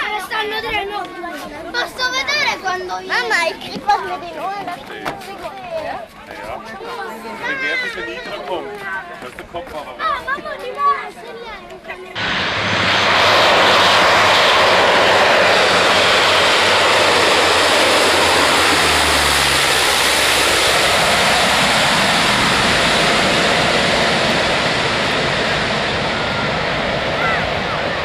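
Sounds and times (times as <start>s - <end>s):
low-flying propeller plane roar: 12.2s - 28.0s.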